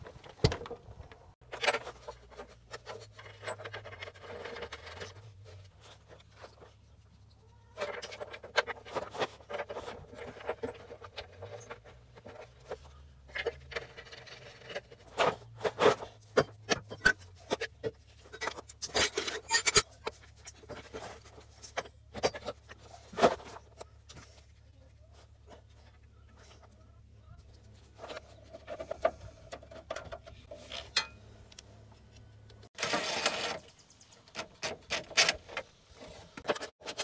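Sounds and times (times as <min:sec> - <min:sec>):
metallic knocks and scrapes of tools: 0:07.8 - 0:24.5, 0:27.6 - 0:31.6.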